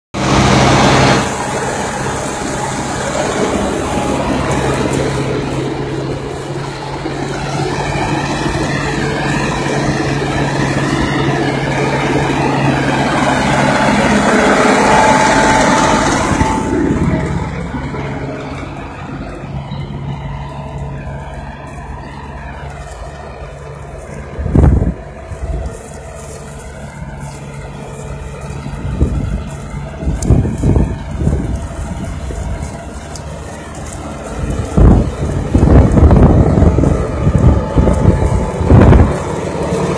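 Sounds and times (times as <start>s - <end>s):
tractor diesel engine under load: 0.0s - 39.9s.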